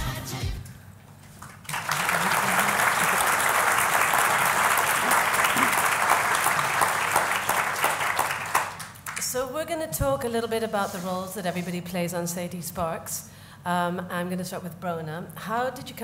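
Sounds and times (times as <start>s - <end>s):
audience applauding: 1.4s - 9.3s.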